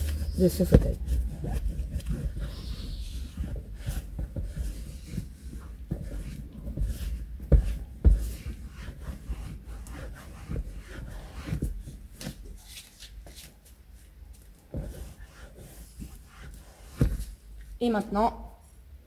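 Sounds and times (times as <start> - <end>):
cloth rubbing leather seat: 0.0 - 12.9.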